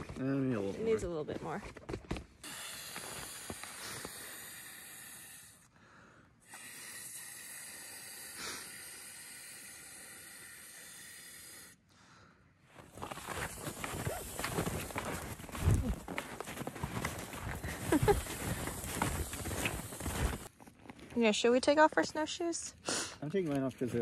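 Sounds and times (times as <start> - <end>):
man blowing into inner tube: 2.4 - 5.6, 6.4 - 11.8, 13.2 - 14.9.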